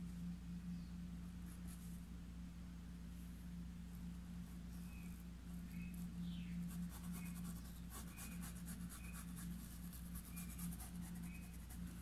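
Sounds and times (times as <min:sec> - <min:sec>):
steady low hum: 0:00.0 - 0:12.0
paintbrush scratching on fabric: 0:06.7 - 0:12.0.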